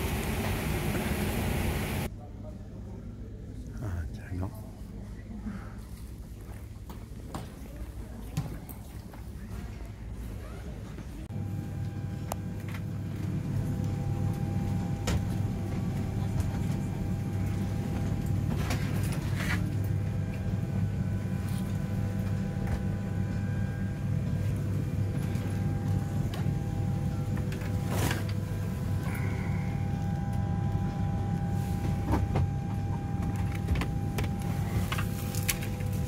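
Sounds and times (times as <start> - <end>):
aircraft air system hum: 0.0 - 7.1, 9.1 - 36.0
faint steady whine: 11.2 - 36.0.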